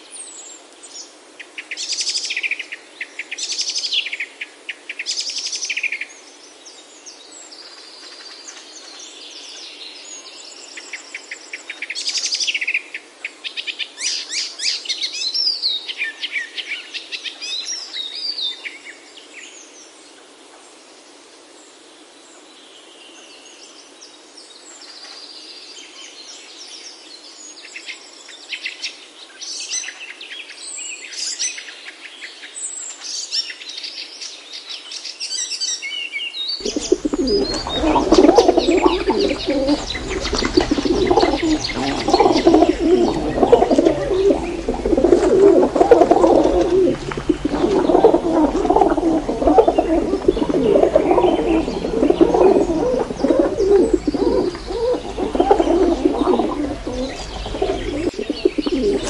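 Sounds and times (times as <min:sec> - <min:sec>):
faint steady hiss: 0:36.6 - 0:59.0
songbirds trilling and chirping: 0:36.6 - 0:59.0.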